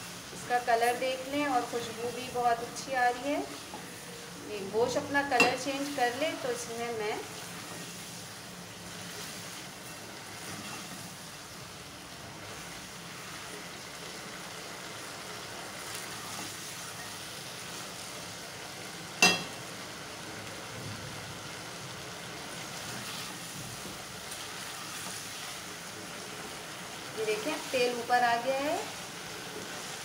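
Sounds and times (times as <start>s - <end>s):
meat sizzling in oil: 0.0s - 30.0s
spatula stirring in pot: 22.5s - 26.7s.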